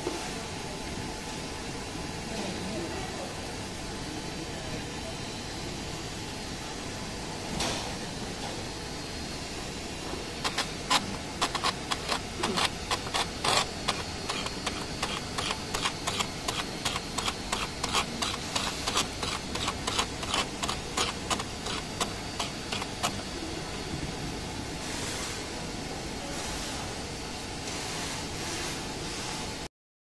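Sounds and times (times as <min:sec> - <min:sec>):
electrode sparking against metal plate: 0:10.4 - 0:23.3.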